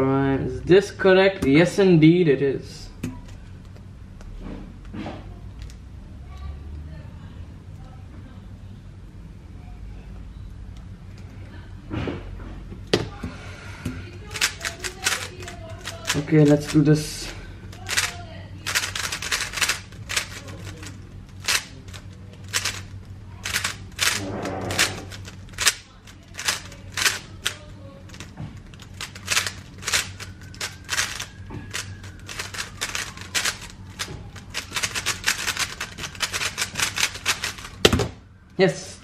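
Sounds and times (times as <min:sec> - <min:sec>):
puzzle cube plastic clicking: 0:14.2 - 0:17.0, 0:17.7 - 0:38.1.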